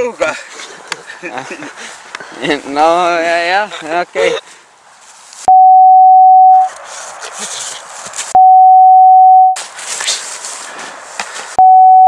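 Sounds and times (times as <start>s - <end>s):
steady test tone beep: 5.5s - 6.7s, 8.4s - 9.6s, 11.6s - 12.0s.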